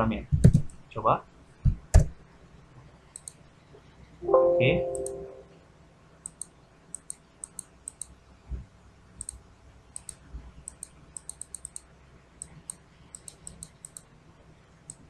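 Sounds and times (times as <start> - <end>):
computer mouse clicking: 3.1 - 3.4, 6.2 - 8.2, 9.2 - 14.1.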